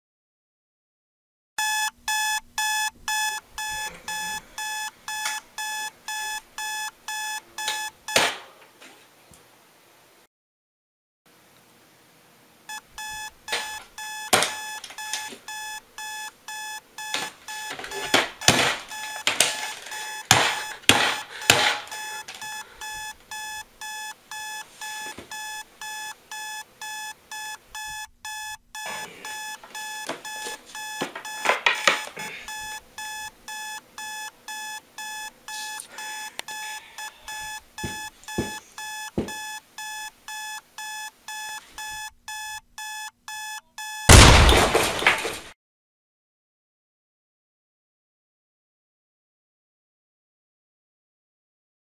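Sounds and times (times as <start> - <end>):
alarm clock beeping: 1.6 - 8.4, 12.7 - 44.4.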